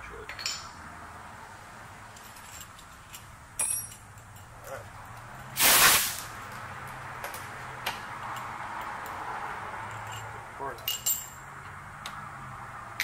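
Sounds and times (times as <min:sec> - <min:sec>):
sharp metallic clink: 0:03.6 - 0:04.5
burst of hiss: 0:05.5 - 0:06.4.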